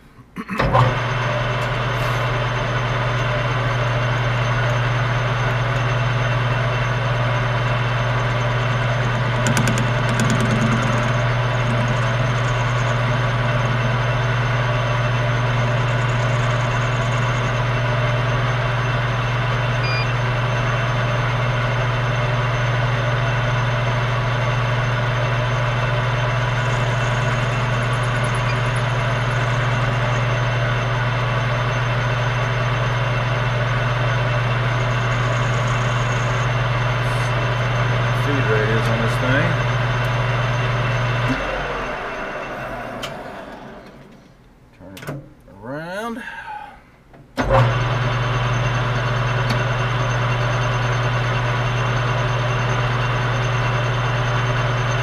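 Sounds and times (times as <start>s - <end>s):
metal lathe humming: 0.8s - 44.2s.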